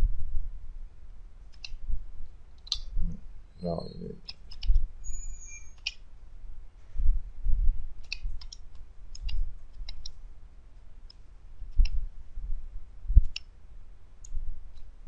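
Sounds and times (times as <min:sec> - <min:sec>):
computer keyboard keystrokes: 0:08.0 - 0:10.2.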